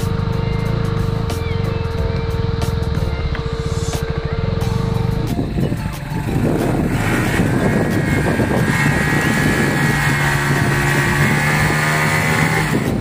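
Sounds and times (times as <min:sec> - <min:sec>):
motorcycle engine revving hard: 0:00.0 - 0:13.0.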